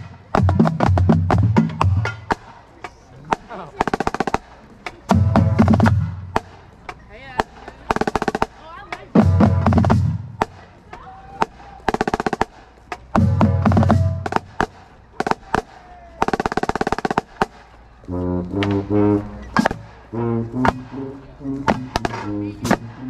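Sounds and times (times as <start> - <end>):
snare drum rolls: 3.3 - 6.6, 7.4 - 10.7, 11.4 - 17.8, 18.5 - 23.0
horns playing held notes: 5.1 - 6.3, 13.1 - 14.5, 18.0 - 23.0
deep heavy band hits: 5.1 - 6.6, 9.1 - 10.5, 13.1 - 15.5, 18.6 - 23.0.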